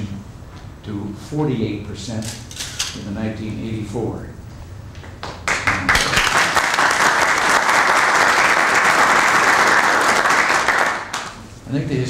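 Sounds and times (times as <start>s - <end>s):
people applauding: 5.2s - 11.4s.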